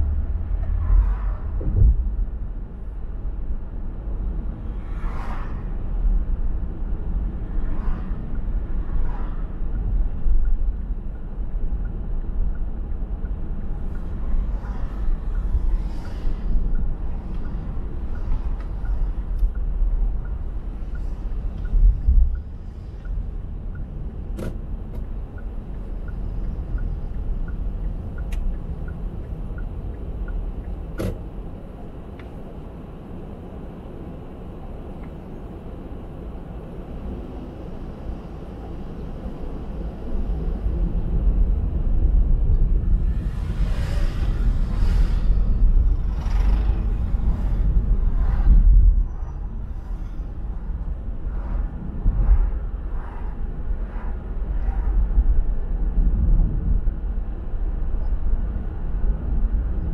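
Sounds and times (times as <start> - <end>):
tyres and road noise: 0.0 - 59.9.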